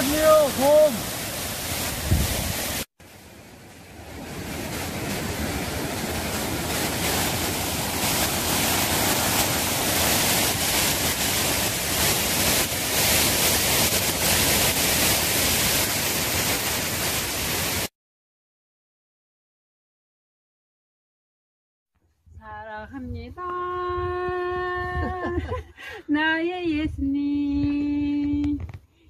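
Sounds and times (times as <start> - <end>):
water rushing over weir: 0.0 - 17.9.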